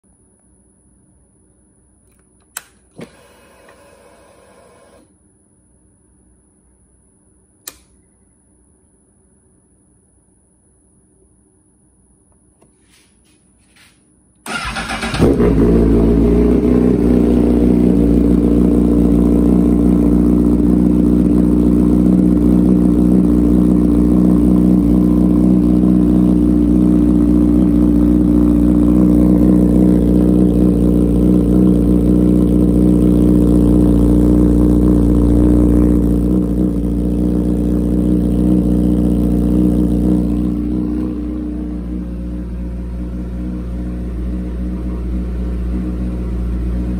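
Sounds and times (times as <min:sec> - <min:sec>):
motorcycle engine starting: 0:14.4 - 0:46.9
motorcycle engine idling: 0:14.5 - 0:46.9.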